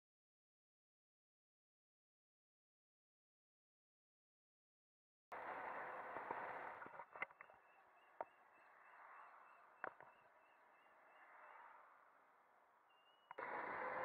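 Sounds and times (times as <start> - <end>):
road noise: 5.4 - 14.0
faint pulsing high tone: 5.7 - 14.0.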